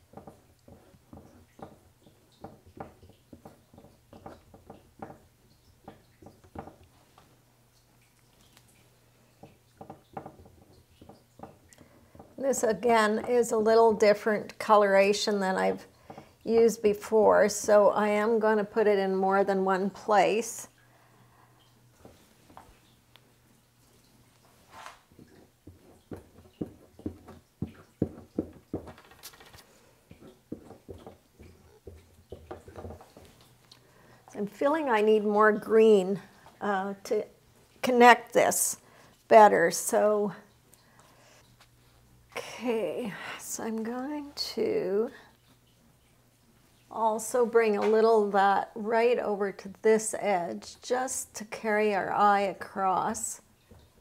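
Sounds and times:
scraper tapping paint on panel: 0.0 - 6.9, 25.2 - 33.4.

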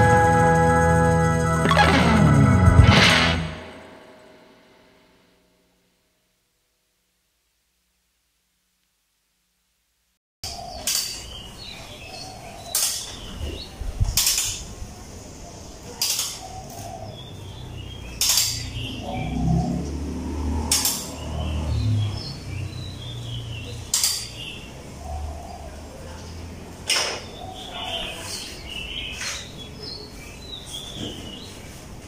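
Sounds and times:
birds chirping faintly: 10.4 - 32.0
hand tool clinking on metal: 18.2 - 18.8.

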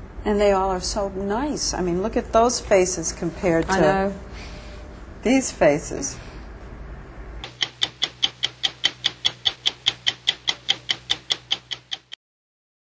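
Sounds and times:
rapid sharp clicks ticking: 7.4 - 12.2.

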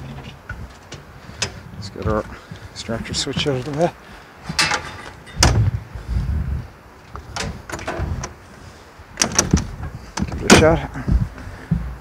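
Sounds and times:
metal parts knocking and clanking: 3.2 - 5.7, 7.4 - 8.4.

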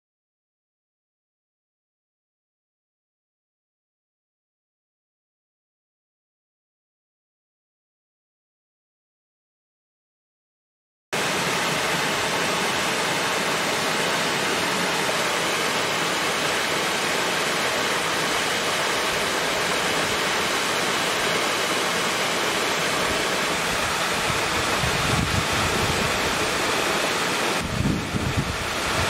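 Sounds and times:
waterfall splashing into pool: 11.2 - 29.0
wind rumble on microphone: 23.6 - 26.6, 27.6 - 29.0.

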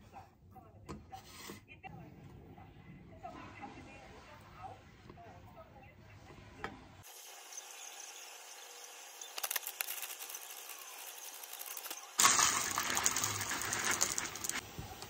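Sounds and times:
fried onions rattling from a box: 9.4 - 14.6
dry cereal poured into plastic tub: 9.5 - 14.6.

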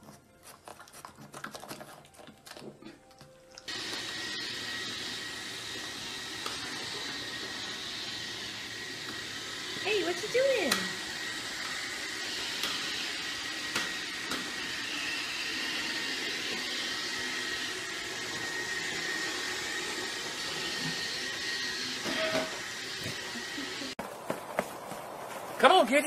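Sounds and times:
robot vacuum whirring: 3.7 - 24.0
thin high whine: 21.8 - 24.0.

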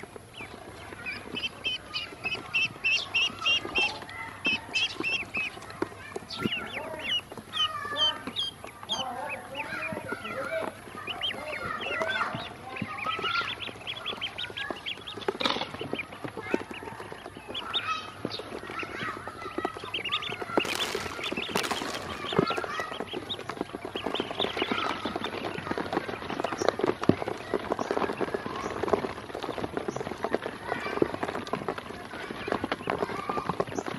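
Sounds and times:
ducklings peeping: 0.0 - 33.9
bills tapping on plastic basin: 20.4 - 22.6.

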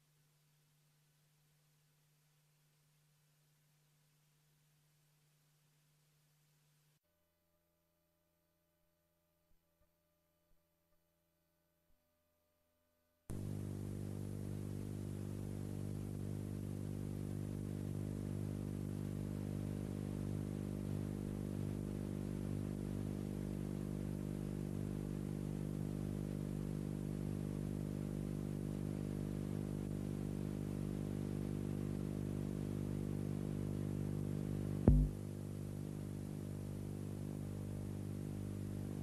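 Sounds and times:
aircraft engine drone in cabin: 13.3 - 39.0.

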